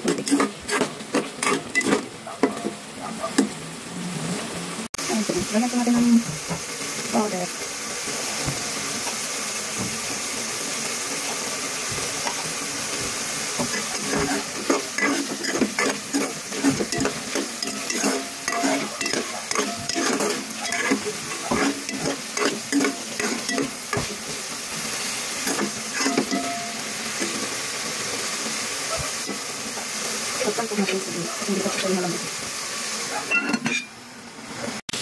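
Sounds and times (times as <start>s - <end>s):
vegetables sizzling in pot: 0.0s - 35.0s
spatula scraping and knocking pot: 11.9s - 24.4s.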